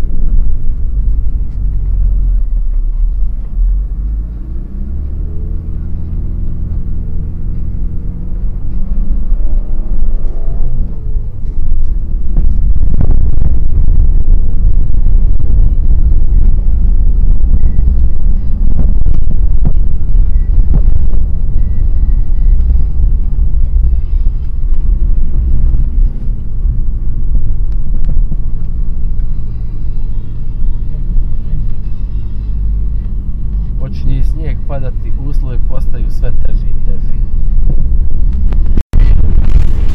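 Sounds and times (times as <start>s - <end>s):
car interior rumble: 0.0s - 39.9s.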